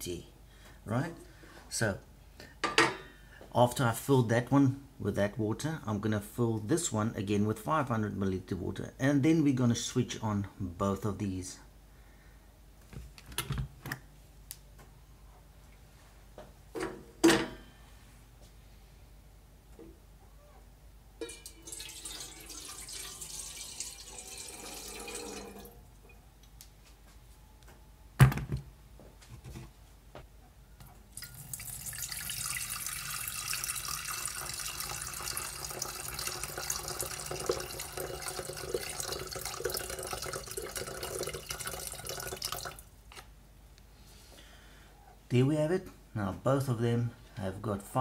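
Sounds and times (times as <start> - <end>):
water pouring into kettle: 21.2 - 25.9, 31.1 - 42.9.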